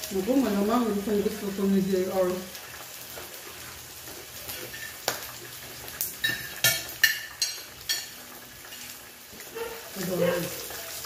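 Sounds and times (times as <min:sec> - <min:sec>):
meat sizzling on a grill: 0:00.0 - 0:11.0
cutlery clinking on plates: 0:06.2 - 0:08.9.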